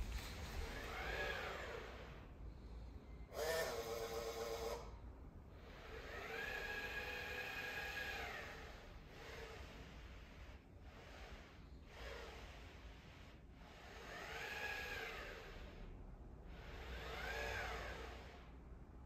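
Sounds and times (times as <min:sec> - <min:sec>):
robot mop motors whining: 0:00.0 - 0:02.2, 0:03.3 - 0:04.9, 0:05.6 - 0:10.2, 0:13.7 - 0:15.8, 0:16.5 - 0:18.5.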